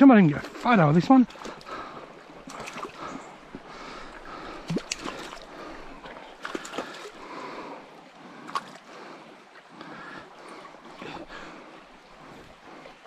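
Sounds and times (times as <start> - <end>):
stream gurgling: 0.0 - 13.0.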